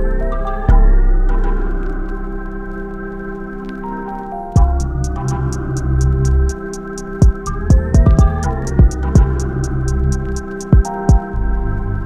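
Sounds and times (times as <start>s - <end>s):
organ-like chords: 0.0s - 12.0s
heavy bass beat with hi-hats: 4.6s - 11.2s
downward sweep: 4.6s - 12.0s.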